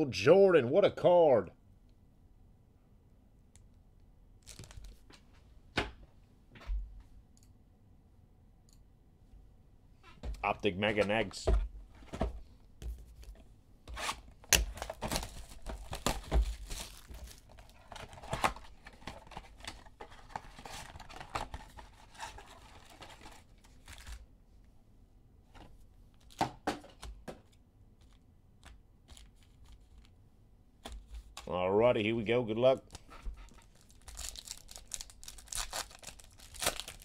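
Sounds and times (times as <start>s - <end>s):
wrapper crinkles and clicks: 4.4s - 5.0s, 14.5s - 24.2s, 32.9s - 37.0s
cardboard tearing and rustling: 14.0s - 24.2s, 33.6s - 37.0s.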